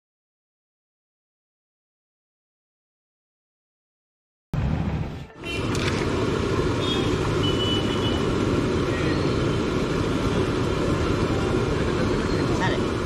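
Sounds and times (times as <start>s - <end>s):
street traffic rumble: 4.6s - 13.0s.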